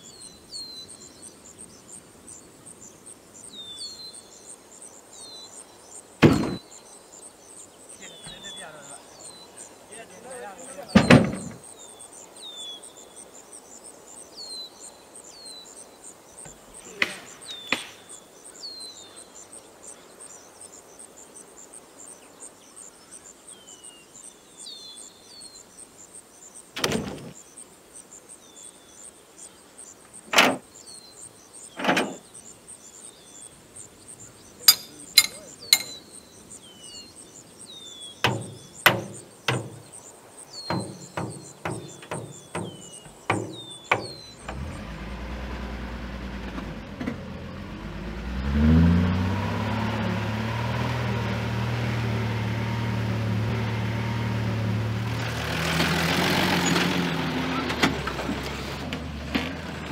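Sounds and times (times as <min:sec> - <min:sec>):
insects chirring: 0:00.0 - 0:59.9
logs knocking and thudding: 0:06.2 - 0:06.6, 0:10.8 - 0:11.6, 0:38.2 - 0:40.0, 0:40.7 - 0:44.8.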